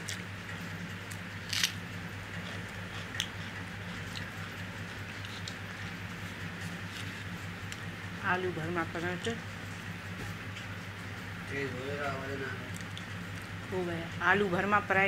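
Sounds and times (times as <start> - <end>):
chewing crunches: 0.0 - 0.3, 1.0 - 7.8, 12.7 - 13.6
onion being bitten: 0.0 - 0.3, 1.0 - 7.4
steady low hum: 0.0 - 15.0.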